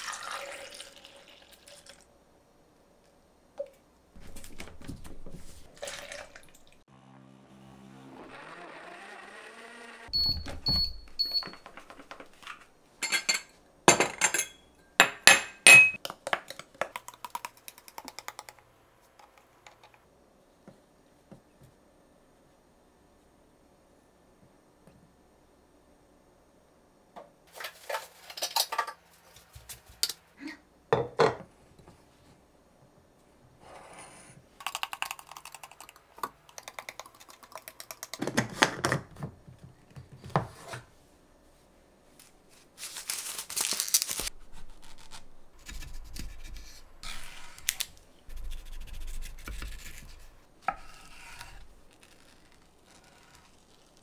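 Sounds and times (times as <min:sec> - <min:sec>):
smoothie pouring into container: 0:00.0 - 0:02.1.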